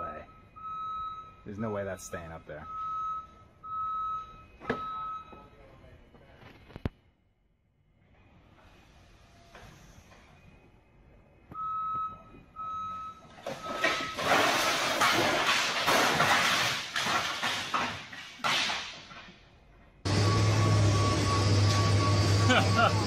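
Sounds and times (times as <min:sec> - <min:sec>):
forklift warning beeper: 0:00.0 - 0:05.6, 0:11.5 - 0:14.2, 0:20.1 - 0:23.0
wooden pallets crashing down: 0:13.3 - 0:19.4
engine drone: 0:20.0 - 0:23.0.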